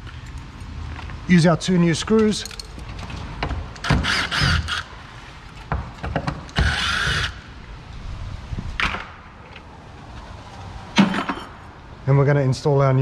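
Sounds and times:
clicks and knocks of handling screws: 2.2s - 3.9s
cordless drill whirring: 4.0s - 4.9s, 6.6s - 7.4s.

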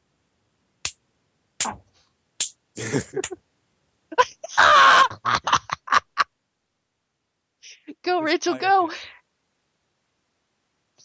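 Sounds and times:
people laughing: 2.8s - 3.4s, 4.2s - 6.2s.

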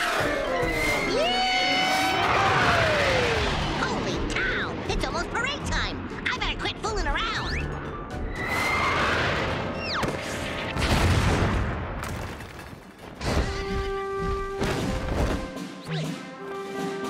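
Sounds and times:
heavy crash-landing boom: 10.8s - 12.4s.

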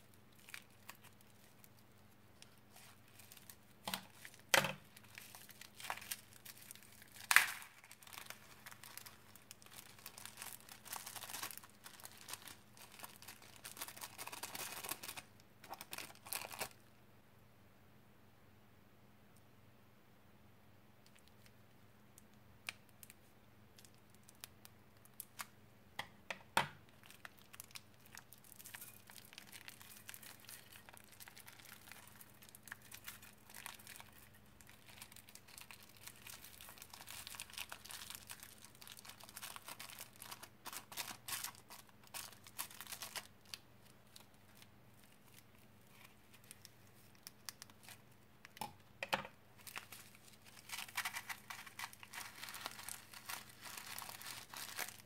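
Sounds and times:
plastic bags rustling: 2.4s - 16.8s, 26.9s - 48.0s, 49.6s - 55.0s.

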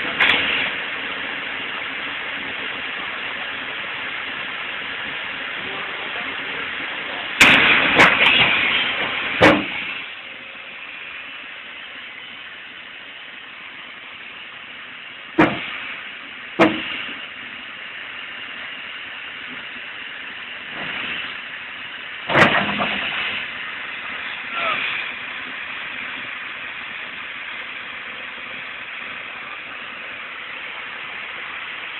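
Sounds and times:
excavator hydraulic hiss: 0.0s - 4.1s, 5.3s - 12.6s, 15.2s - 31.9s
excavator knocks and clanks: 7.4s - 10.0s, 15.4s - 15.7s, 16.6s - 17.2s, 22.2s - 23.5s.

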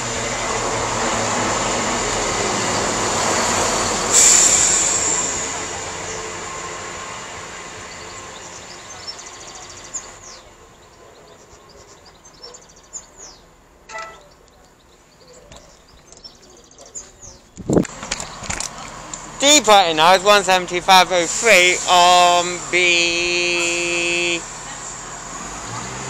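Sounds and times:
diesel train running: 0.0s - 14.4s, 17.6s - 26.0s
high brake squeal: 2.6s - 6.3s, 21.2s - 24.4s
bird chirps: 7.9s - 18.5s.

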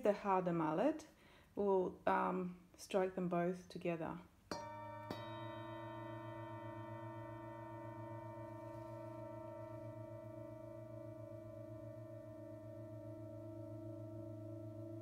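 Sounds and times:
mallet striking bowl: 4.5s - 15.0s
singing bowls ringing: 4.5s - 15.0s.

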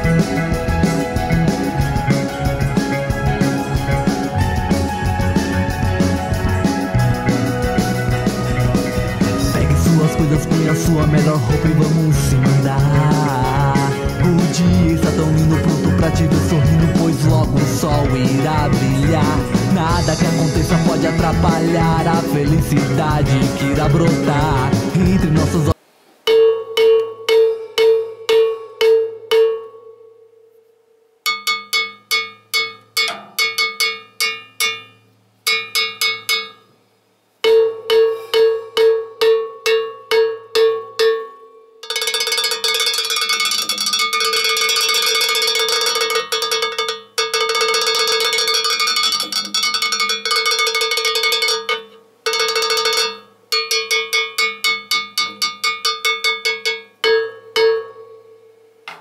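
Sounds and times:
cowbell struck with drumstick: 31.3s - 36.7s, 37.4s - 58.2s.

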